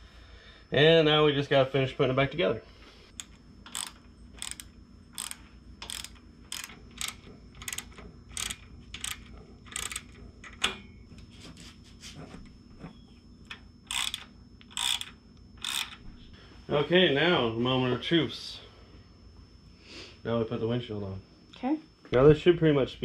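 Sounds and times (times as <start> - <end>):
hand ratchet clicking: 3.1 - 10.7, 13.5 - 16.0.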